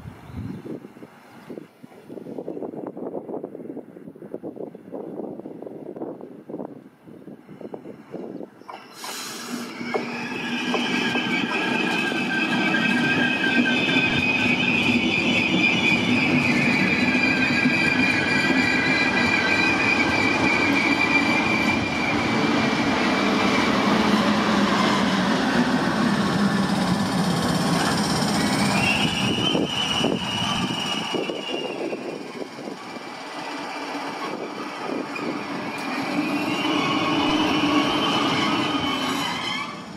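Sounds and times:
train wheels squealing: 0:07.5 - 0:39.9
train running rumble: 0:08.0 - 0:39.9.

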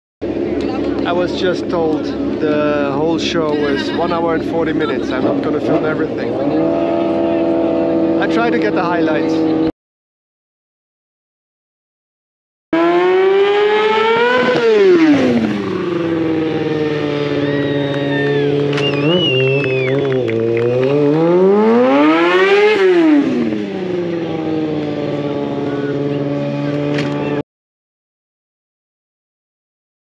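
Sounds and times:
motorcycle engine revving: 0:00.2 - 0:09.7, 0:12.7 - 0:27.4
high squeals: 0:17.2 - 0:20.1.

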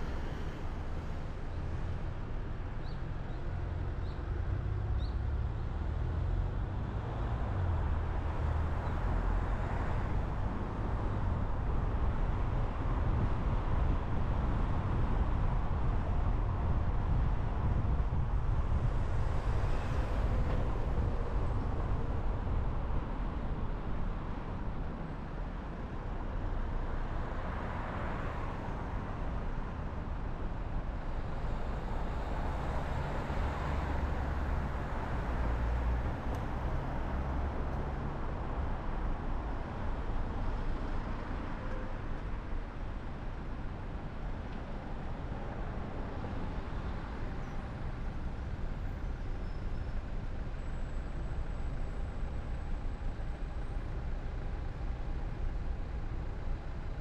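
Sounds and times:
car engine rumble: 0:00.0 - 0:57.0
road and tyre noise: 0:00.0 - 0:57.0.

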